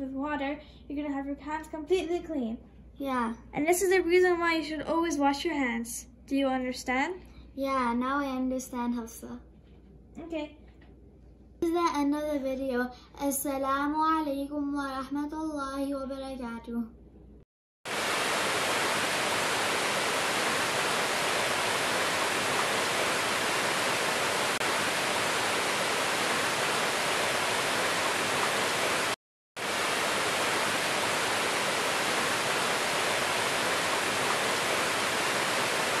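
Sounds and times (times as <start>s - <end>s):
waterfall rushing: 17.9s - 36.0s.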